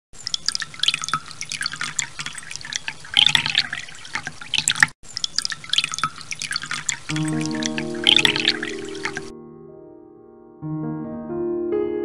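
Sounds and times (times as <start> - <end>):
water drops plinking and splashing: 0.2 - 9.3.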